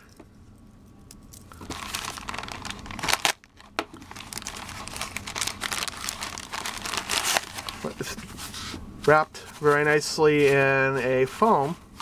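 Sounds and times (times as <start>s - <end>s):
plastic bag crinkling: 1.5s - 8.2s.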